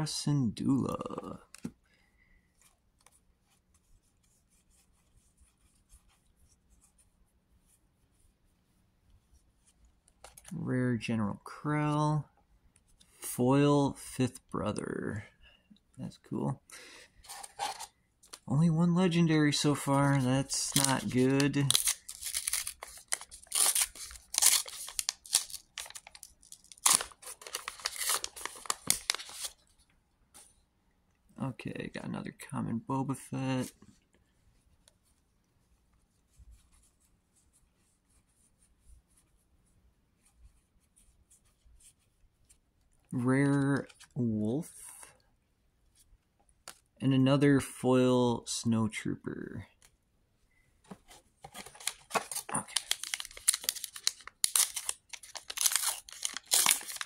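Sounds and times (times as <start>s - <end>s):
wrapper tearing and crinkling: 20.6s - 29.6s, 51.6s - 57.0s.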